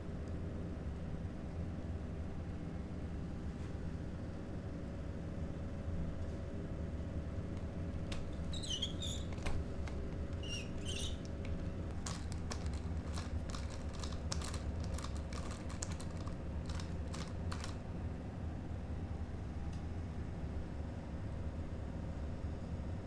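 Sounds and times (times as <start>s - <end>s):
steady low hum: 0.0s - 23.0s
short high squeaks: 8.4s - 9.6s, 10.4s - 11.4s
toy car parts clicking: 12.0s - 17.8s.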